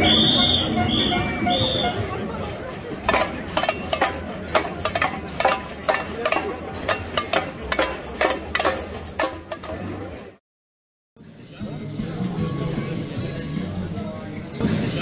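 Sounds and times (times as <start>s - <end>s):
metallic clanks: 2.8s - 10.2s.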